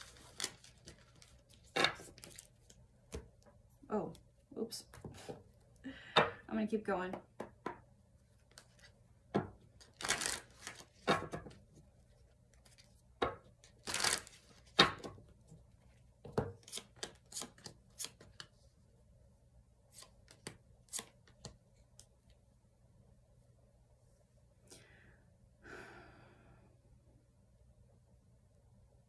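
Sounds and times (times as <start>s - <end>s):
cards clicking and flicking: 16.6s - 18.5s, 20.0s - 21.6s
cards shuffling swishes: 16.6s - 18.5s, 19.9s - 21.6s.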